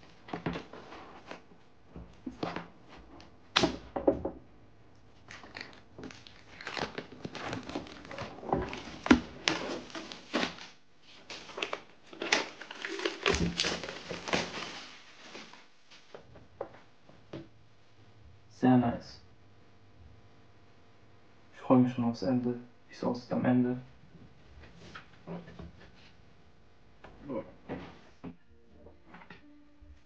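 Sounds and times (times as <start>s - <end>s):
packaging crinkling and tearing: 5.2s - 15.6s.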